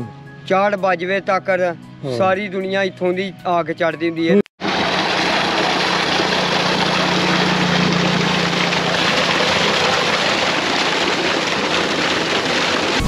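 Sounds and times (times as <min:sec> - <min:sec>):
water pouring into a tank: 0:04.6 - 0:13.0.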